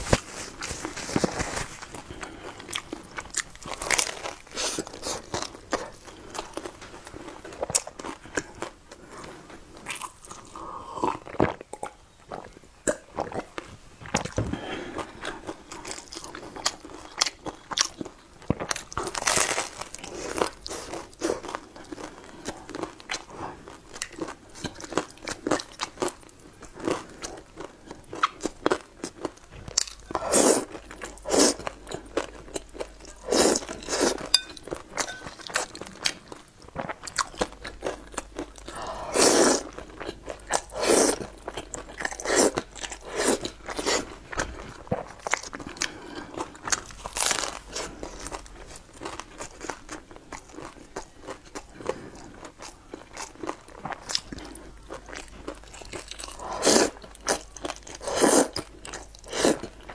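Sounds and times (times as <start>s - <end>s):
chewing and crunching: 0.0s - 59.9s
slurping: 58.0s - 58.6s.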